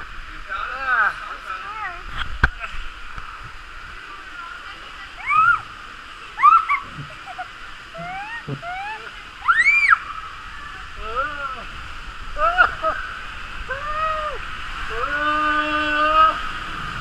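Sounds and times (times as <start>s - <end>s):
rushing water: 0.0s - 17.0s
girl squealing with delight: 5.2s - 5.6s, 6.4s - 7.0s, 8.0s - 10.1s.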